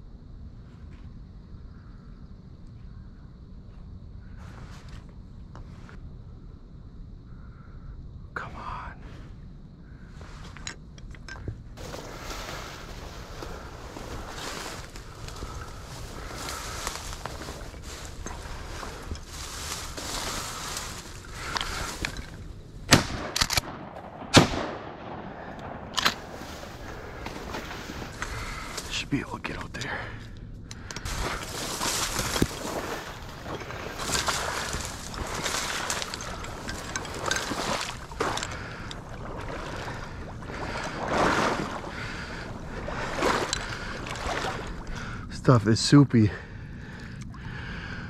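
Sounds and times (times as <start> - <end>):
wading through marsh water: 11.8 - 23.1, 25.6 - 30.2, 31.1 - 45.7
shotgun shots echoing: 22.9 - 26.5
quick clicks: 23.2 - 23.7.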